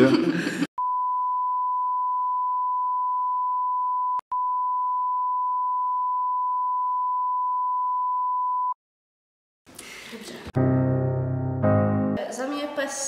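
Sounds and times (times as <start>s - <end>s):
censor bleep tone: 0.8s - 8.8s
speech: 12.2s - 13.0s.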